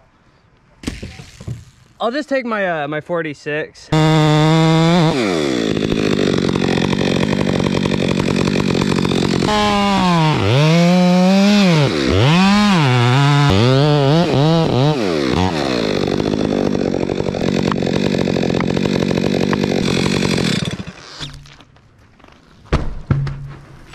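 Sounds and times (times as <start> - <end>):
chainsaw cutting into tree: 3.9 - 21.6.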